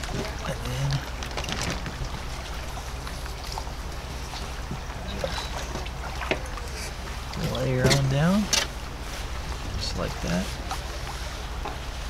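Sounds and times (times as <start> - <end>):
low steady rumble: 0.0 - 12.0
river water rushing: 0.0 - 12.0.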